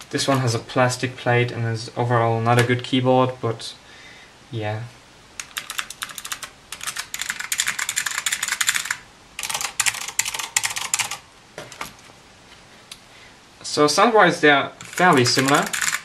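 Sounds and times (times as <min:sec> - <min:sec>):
fast mechanical keyboard typing: 0:05.4 - 0:11.2, 0:14.8 - 0:16.0.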